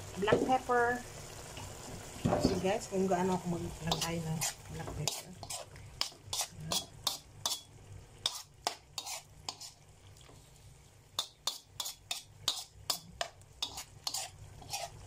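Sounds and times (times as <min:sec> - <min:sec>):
spatula scraping a wok: 0:03.8 - 0:10.6, 0:11.2 - 0:15.0.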